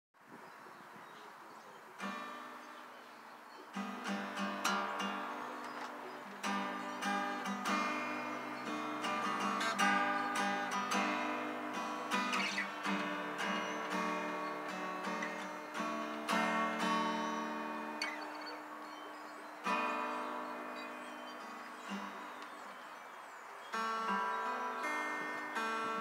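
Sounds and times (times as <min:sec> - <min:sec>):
acoustic guitar strumming: 0:02.0 - 0:02.7, 0:03.7 - 0:26.0.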